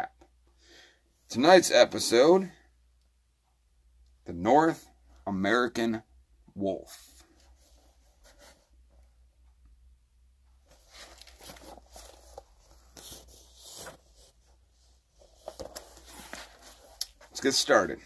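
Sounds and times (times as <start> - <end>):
book pages turning: 10.7 - 14.4, 15.2 - 17.5.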